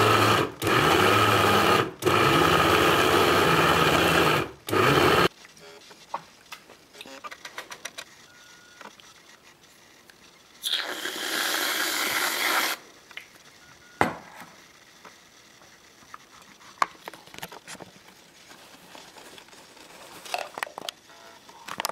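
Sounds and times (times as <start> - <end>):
whipped cream can hissing: 10.6 - 12.8
faint clicks and rustles: 15.0 - 21.9.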